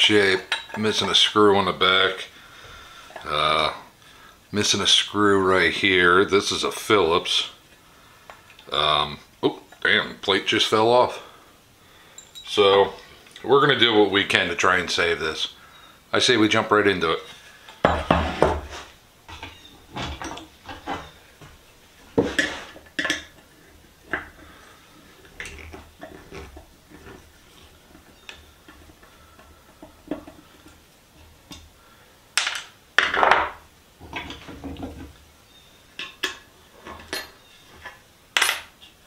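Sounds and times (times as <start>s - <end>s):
tools knocking on wooden workbench: 17.8s - 21.1s.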